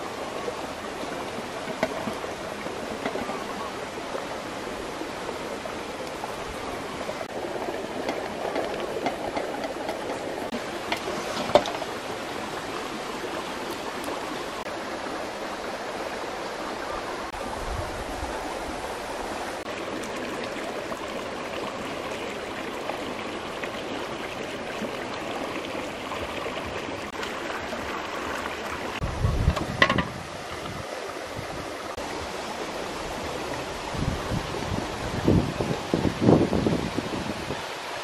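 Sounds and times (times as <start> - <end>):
stream water rushing: 0.0 - 38.0.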